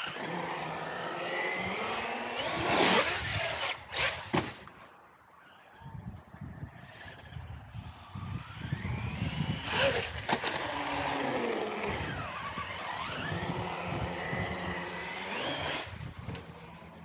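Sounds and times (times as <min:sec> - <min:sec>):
electric motor whining: 0:07.4 - 0:17.0.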